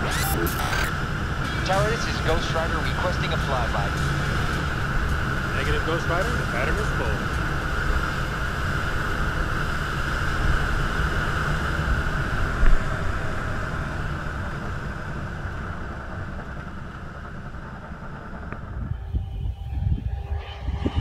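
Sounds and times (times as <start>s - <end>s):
gusty wind on microphone: 18.3s - 21.0s.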